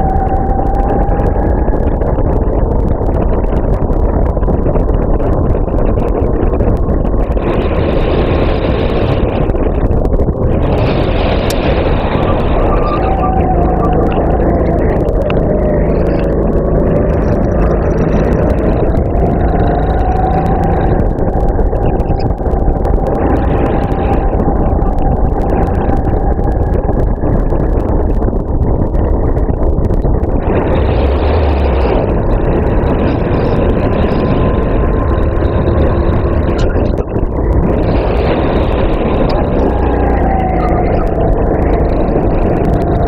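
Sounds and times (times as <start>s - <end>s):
kart engine running: 0.0s - 43.0s.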